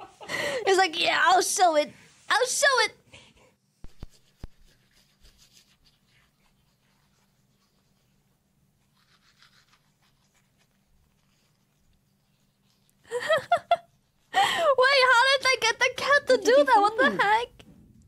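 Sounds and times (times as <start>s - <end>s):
toothbrush scrubbing: 3.8s - 13.0s.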